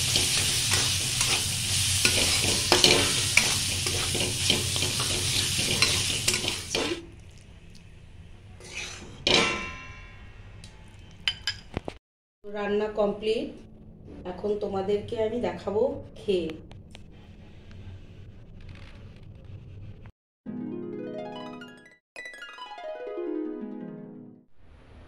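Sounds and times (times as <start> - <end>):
curry sizzling in a pan: 0.0 - 7.1
spatula stirring and scraping: 0.0 - 7.1.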